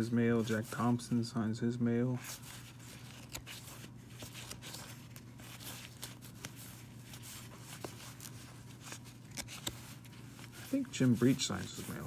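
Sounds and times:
cards flicking through by hand: 0:03.0 - 0:10.5.

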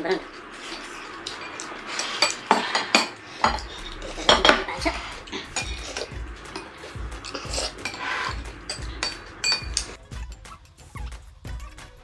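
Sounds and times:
low rumble: 0:00.0 - 0:10.0
cutlery clinking on plates: 0:00.4 - 0:10.0.

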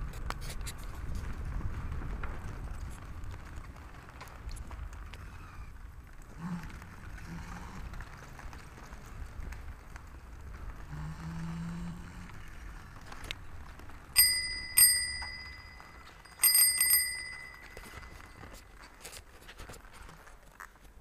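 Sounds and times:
bicycle bell ringing: 0:14.2 - 0:18.6.

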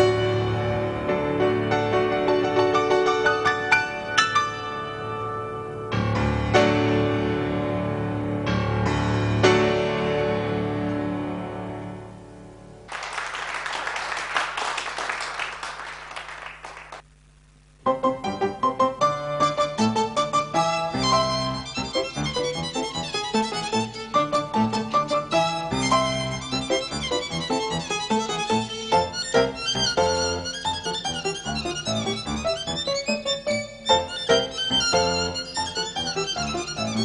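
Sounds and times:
grand piano playing: 0:00.0 - 0:12.9, 0:17.9 - 0:37.0
audience applauding: 0:12.9 - 0:17.1.

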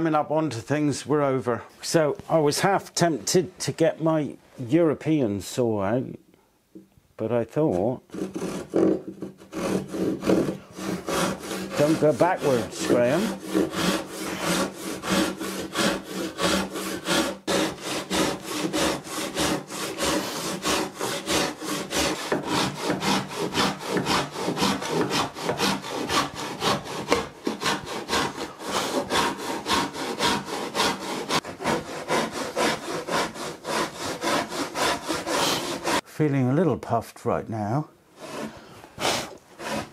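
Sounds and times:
handsaw cutting: 0:08.1 - 0:36.0, 0:38.2 - 0:39.9.

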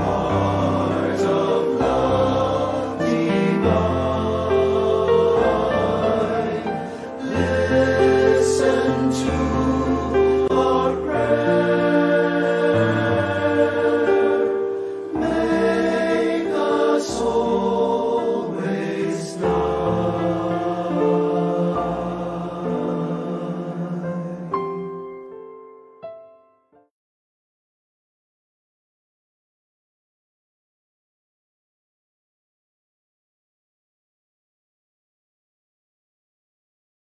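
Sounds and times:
choir singing a hymn: 0:00.0 - 0:25.0.

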